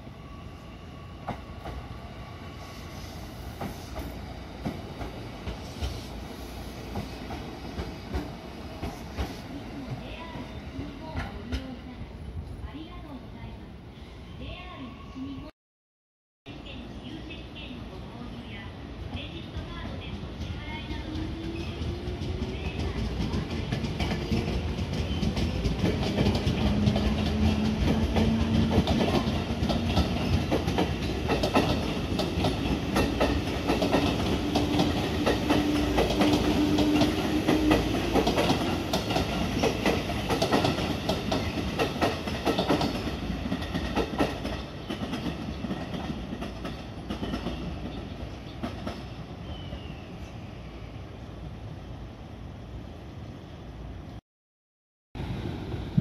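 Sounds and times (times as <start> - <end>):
train wheels clacking over rail joints: 22.4 - 47.6.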